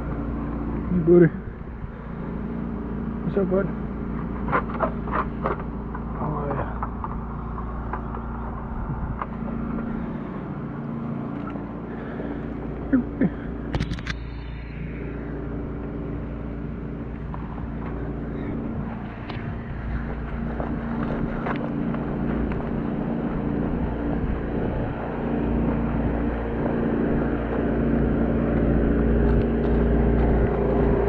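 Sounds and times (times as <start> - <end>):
engine humming steadily: 0.0 - 31.0
sharp clicks and knocks: 13.7 - 14.4.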